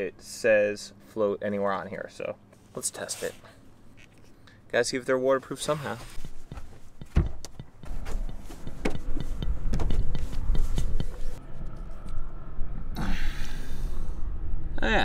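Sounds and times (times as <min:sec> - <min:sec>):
wind rumbling on microphone: 0:08.7 - 0:15.0.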